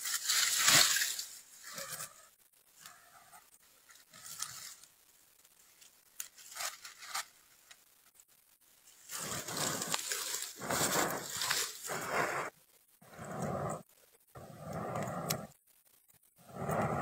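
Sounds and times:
rustling in dry leaves: 0:00.0 - 0:07.8, 0:08.8 - 0:12.6.

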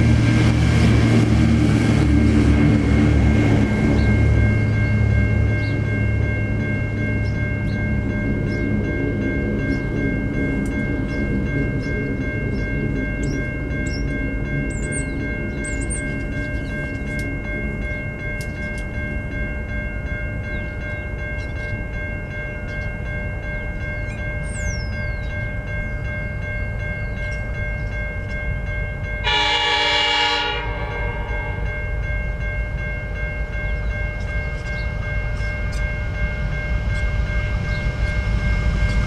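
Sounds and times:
diesel locomotive rumble: 0:00.0 - 0:39.0
birds chirping: 0:02.8 - 0:28.5, 0:30.4 - 0:36.0, 0:36.9 - 0:39.0
high whine: 0:29.0 - 0:39.0.

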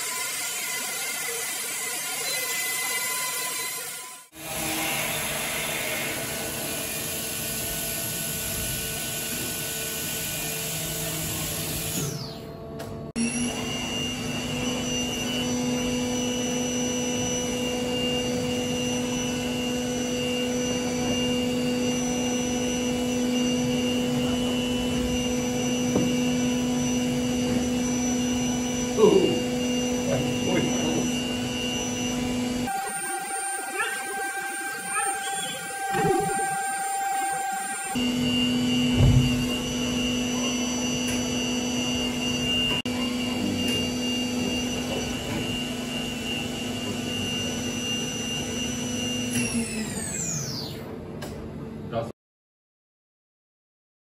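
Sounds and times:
milling machine spindle whine: 0:00.0 - 0:12.5, 0:13.2 - 0:51.0
short wavering squeal: 0:28.0 - 0:41.0.

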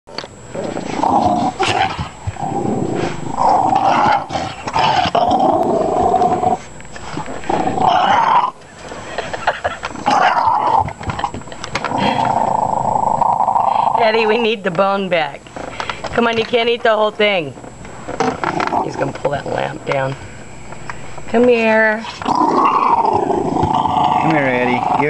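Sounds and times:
small dog growling: 0:00.5 - 0:08.6, 0:10.0 - 0:14.1, 0:18.2 - 0:19.0, 0:22.1 - 0:25.0.

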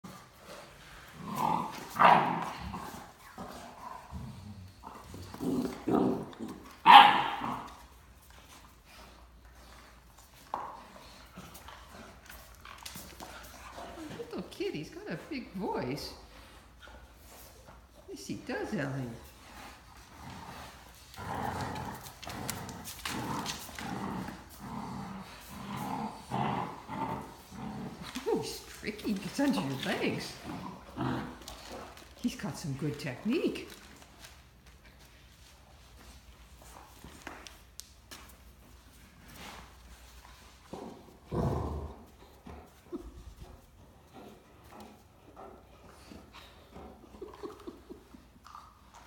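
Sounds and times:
dogs growling: 0:00.0 - 0:17.3, 0:17.9 - 0:32.3, 0:39.0 - 0:49.0
dog barking: 0:06.9 - 0:07.4
claws scrabbling on tile floor: 0:19.8 - 0:32.2.

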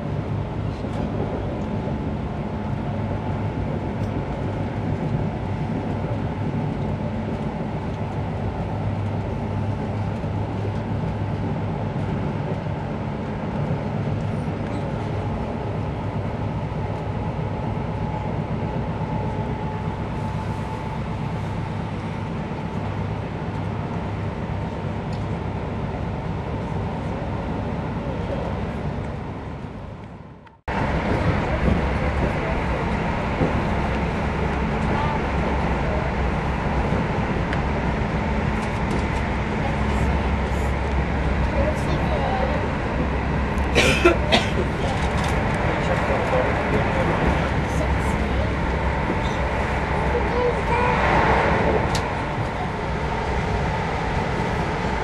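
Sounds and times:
low train hum: 0:00.0 - 0:55.0
train wheels on rails: 0:30.7 - 0:55.0.

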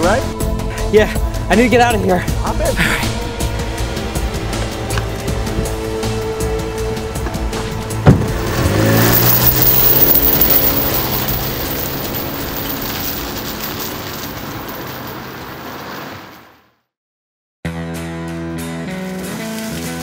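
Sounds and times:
music: 0:00.0 - 0:11.4, 0:17.6 - 0:20.0
car engine pulling away: 0:02.4 - 0:16.3
tyre noise: 0:07.1 - 0:16.2.

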